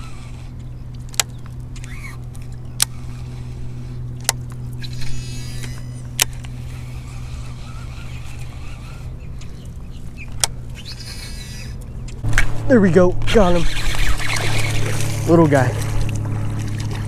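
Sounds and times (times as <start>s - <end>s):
fishing reel clicks: 0.0s - 11.9s
steady low hum: 0.0s - 17.0s.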